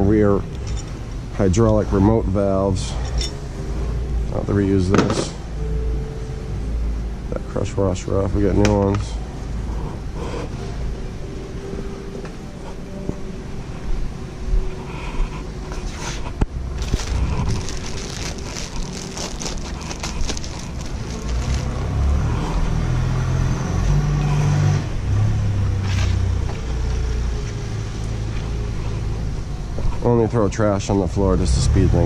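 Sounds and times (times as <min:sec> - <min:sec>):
steady low rumble: 0:00.0 - 0:24.0
tools clinking and rattling: 0:00.5 - 0:01.0, 0:02.9 - 0:03.4.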